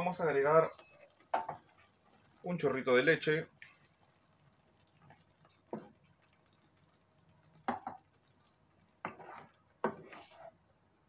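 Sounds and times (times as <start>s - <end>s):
wooden spoon knocking pan: 1.3s - 1.7s, 7.6s - 8.1s.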